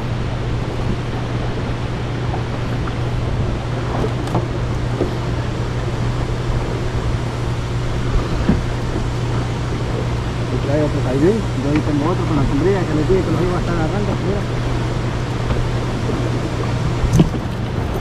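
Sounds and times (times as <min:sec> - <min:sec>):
boat motor humming: 0:00.0 - 0:18.0
water noise: 0:00.0 - 0:18.0
wind: 0:00.0 - 0:18.0
faint knocks on boat: 0:03.8 - 0:05.3, 0:08.2 - 0:10.1, 0:15.4 - 0:18.0.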